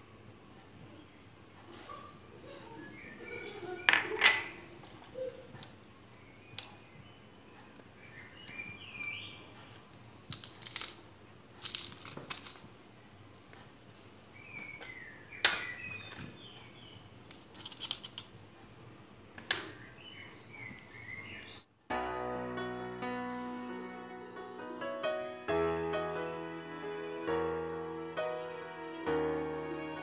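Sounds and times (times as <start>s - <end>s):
bird chirping: 0.8s - 9.8s, 13.2s - 18.8s, 19.6s - 21.8s.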